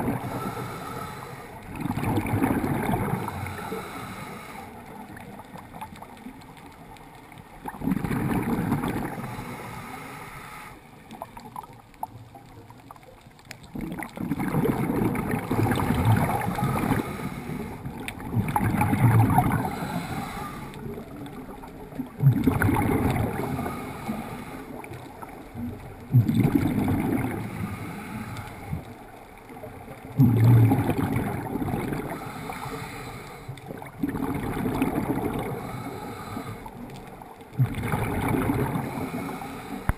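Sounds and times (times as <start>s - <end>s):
gurgling exhaust bubbles: 0.0s - 0.4s, 1.7s - 3.5s, 7.6s - 9.3s, 13.6s - 17.2s, 17.8s - 19.8s, 20.9s - 23.7s, 25.6s - 27.6s, 30.2s - 32.3s, 33.6s - 35.8s, 37.5s - 39.2s.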